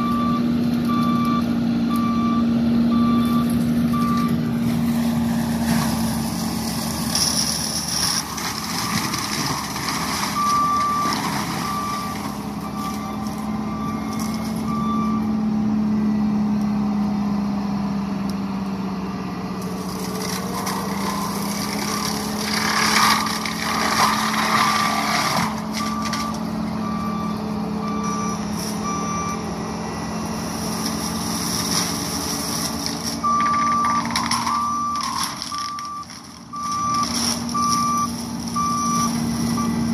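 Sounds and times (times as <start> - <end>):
mulching machine engine droning: 0.0 - 39.9
mulching head grinding brush: 19.6 - 26.8, 27.4 - 39.9
backup alarm beeping: 25.8 - 29.4, 33.2 - 39.9.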